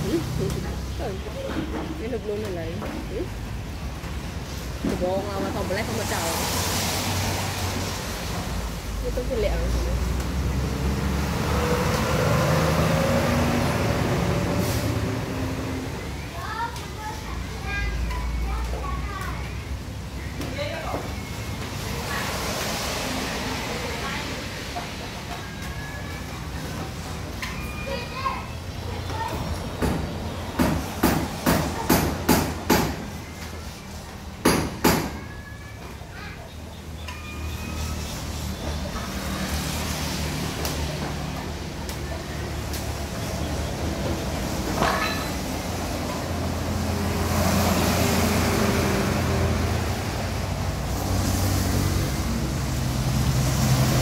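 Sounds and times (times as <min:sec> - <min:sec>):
vehicle engine passing by: 0:05.5 - 0:16.0, 0:21.8 - 0:25.1, 0:37.7 - 0:54.0
sharp knocks: 0:29.8 - 0:33.1.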